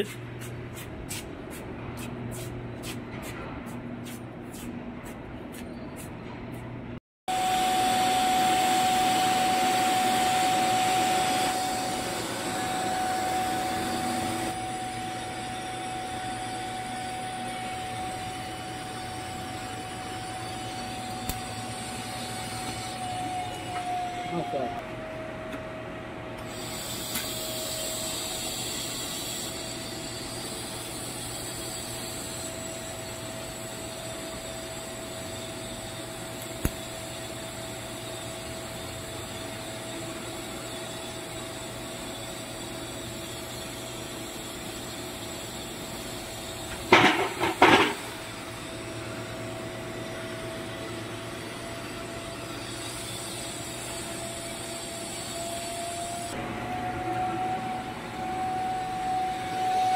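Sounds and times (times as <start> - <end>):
welding arc hiss: 15.2 - 23.2, 26.4 - 48.7, 52.4 - 56.4.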